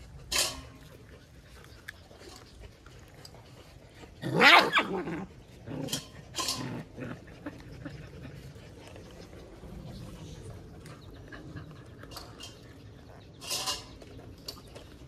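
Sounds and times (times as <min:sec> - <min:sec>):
puppies barking: 0:04.2 - 0:05.3.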